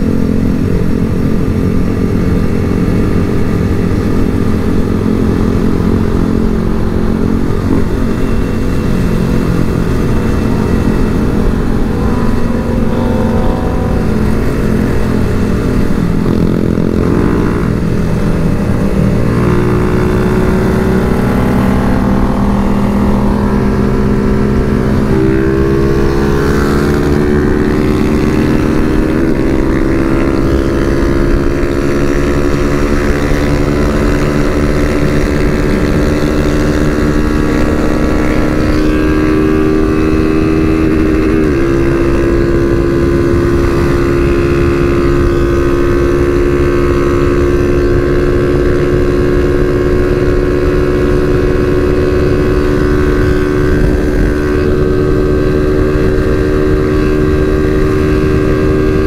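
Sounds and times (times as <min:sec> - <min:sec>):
motorcycle engine at high revs: 0:00.0 - 0:59.0
wind rushing: 0:08.5 - 0:16.8.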